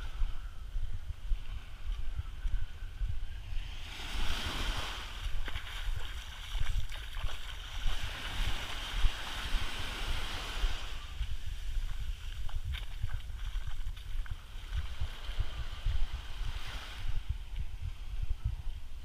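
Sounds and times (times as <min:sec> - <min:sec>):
wind buffeting microphone: 0:00.0 - 0:19.0
waves breaking on beach: 0:03.5 - 0:17.4.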